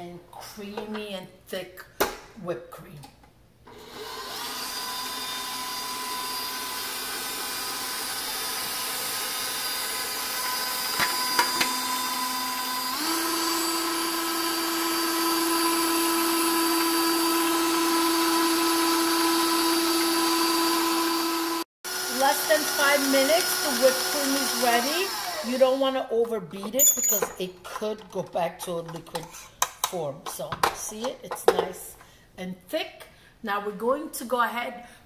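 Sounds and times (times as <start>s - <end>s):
stand mixer motor humming: 3.8s - 25.5s.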